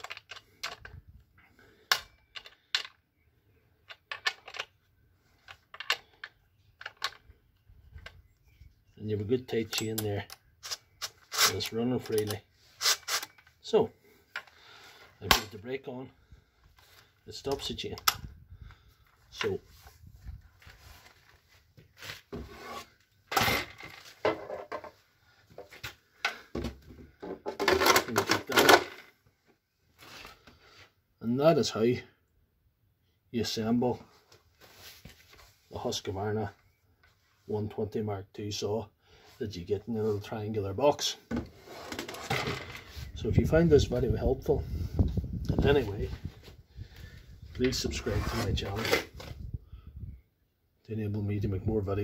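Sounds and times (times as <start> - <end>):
chainsaw set down on concrete: 23.3 - 24.9
plastic rattling on metal: 27.2 - 29.1.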